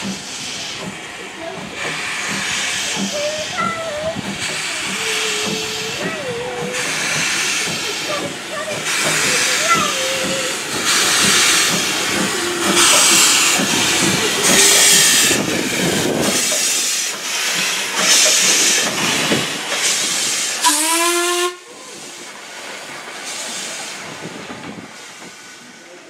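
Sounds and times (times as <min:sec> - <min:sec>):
steam locomotive chuffing: 0:00.0 - 0:26.0
steam whistle blast: 0:20.6 - 0:21.7.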